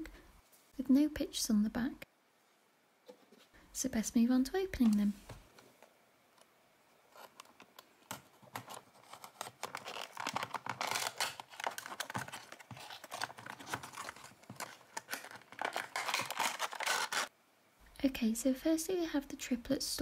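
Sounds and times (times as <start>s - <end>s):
plastic wrapping crinkling: 7.1s - 17.3s.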